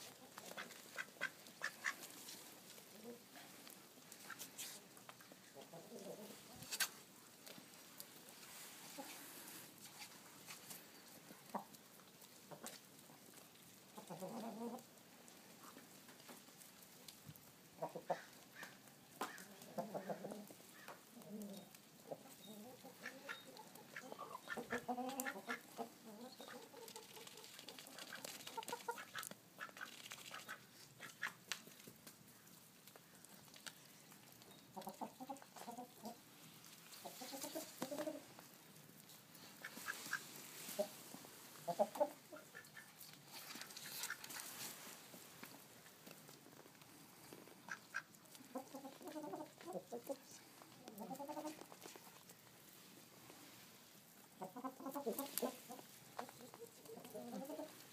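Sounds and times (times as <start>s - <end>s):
chickens clucking: 0.0s - 7.0s, 8.5s - 10.2s, 11.0s - 15.0s, 17.8s - 31.5s, 33.0s - 45.0s, 47.4s - 52.5s, 54.0s - 57.9s
ducks quacking: 0.4s - 2.1s, 22.8s - 27.2s, 47.6s - 50.2s.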